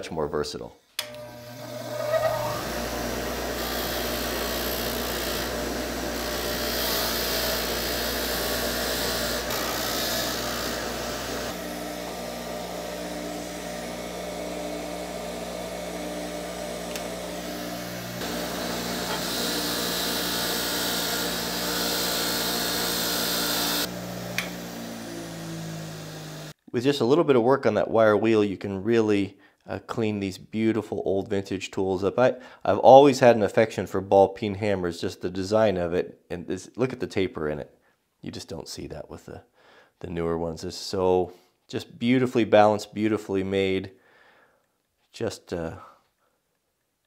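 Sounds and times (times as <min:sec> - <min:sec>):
bench grinder motor hum: 0:01.0 - 0:26.6
wire wheel brushing metal: 0:01.6 - 0:02.7.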